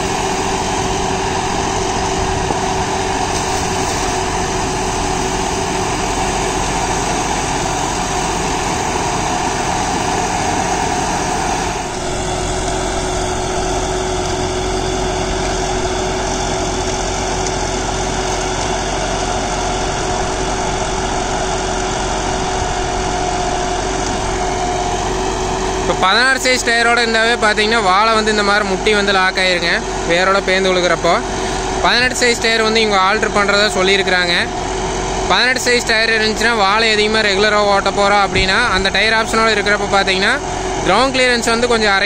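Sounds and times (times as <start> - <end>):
tractor diesel engine running: 0.0 - 42.0
rotary tiller chopping stalks: 0.1 - 25.2.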